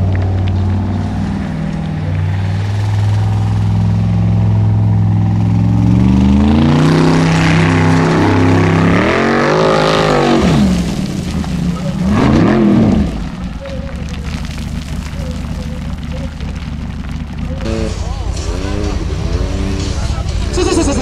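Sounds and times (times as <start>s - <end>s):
buggy engine revving: 0.0s - 21.0s.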